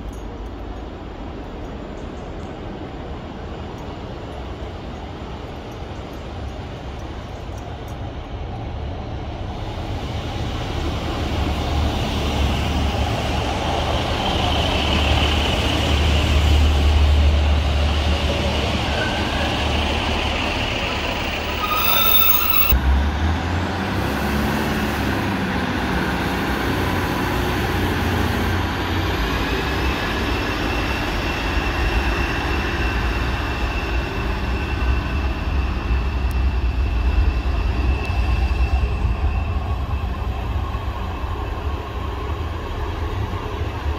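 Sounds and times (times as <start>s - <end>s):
train engine and wheel rumble: 0.0s - 43.9s
high wheel squeals: 18.8s - 22.8s.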